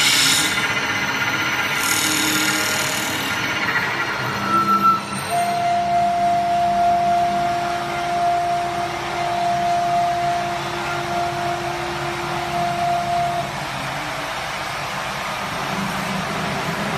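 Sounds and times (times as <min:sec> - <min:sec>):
wood lathe running: 0:00.0 - 0:04.4
steady machine whine: 0:00.0 - 0:16.9.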